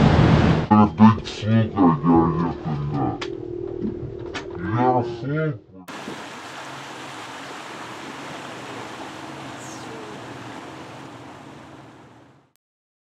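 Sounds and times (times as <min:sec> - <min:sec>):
rush of wind and water: 0:05.9 - 0:12.5
boat engine low hum: 0:05.9 - 0:12.6.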